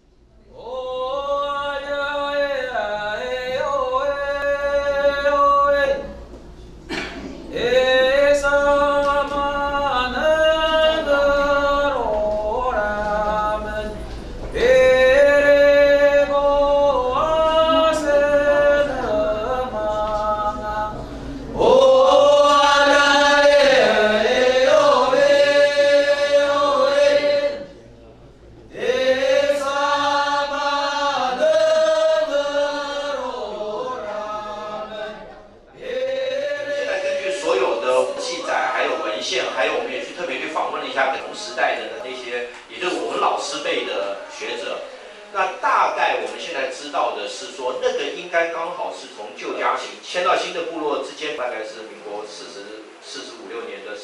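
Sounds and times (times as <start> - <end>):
person singing a slow chant: 0.4 - 6.4, 7.5 - 27.8, 28.7 - 39.6.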